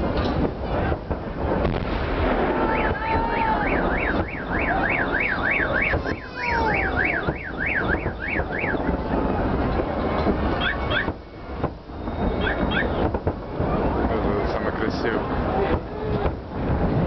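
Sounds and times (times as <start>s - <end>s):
crowd noise: 0.0s - 17.0s
fireworks bursts rumbling: 0.0s - 17.0s
warbling electronic alarm siren: 2.7s - 9.0s, 10.6s - 13.0s.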